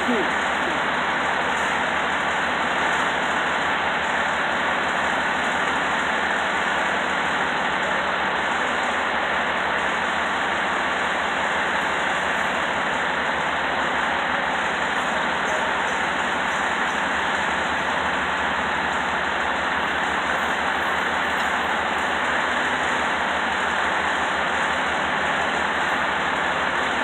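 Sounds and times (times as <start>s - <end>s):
truck engine running: 0.0s - 27.0s.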